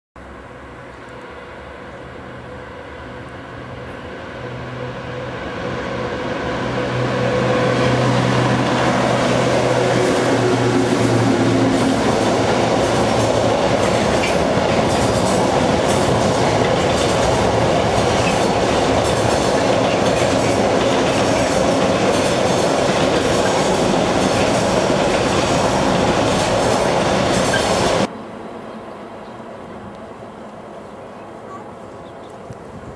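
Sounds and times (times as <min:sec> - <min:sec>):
electric locomotive hum: 0:00.2 - 0:32.9
train rumbling past: 0:00.2 - 0:32.9
wheels clacking over rail joints: 0:07.3 - 0:28.1.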